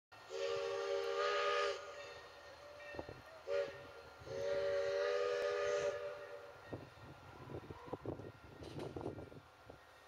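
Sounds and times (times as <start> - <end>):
steam locomotive whistle: 0.2 - 8.1
steam hissing: 0.2 - 8.6.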